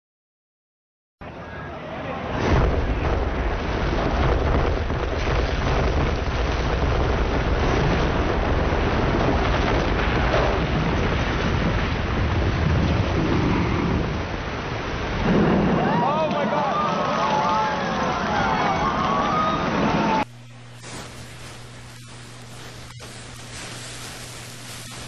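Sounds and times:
building collapsing roar: 2.0 - 25.0.

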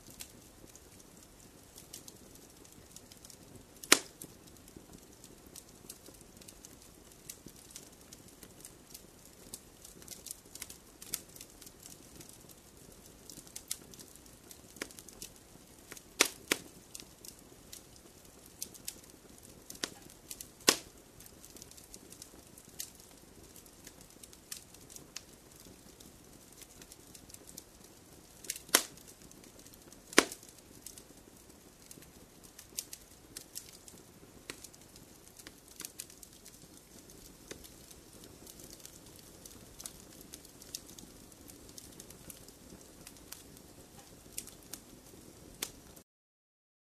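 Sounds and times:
faint fire hiss: 0.0 - 46.0
fire crackling and popping: 0.0 - 46.0.

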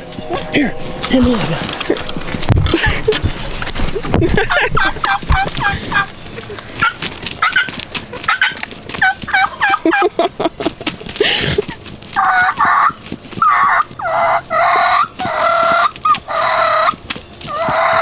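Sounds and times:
turkeys calling: 0.0 - 18.0
raspy turkey squawks: 4.5 - 10.0, 12.2 - 18.0.

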